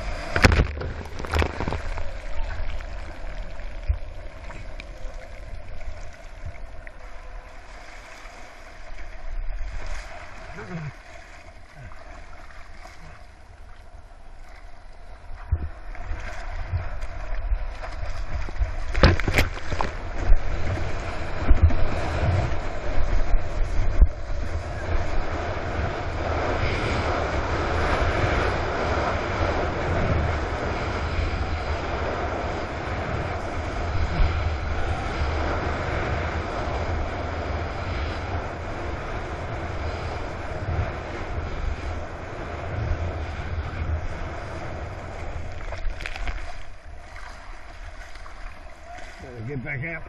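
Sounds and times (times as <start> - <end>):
water rushing and splashing: 0.0 - 50.0
wind buffeting microphone: 15.2 - 50.0.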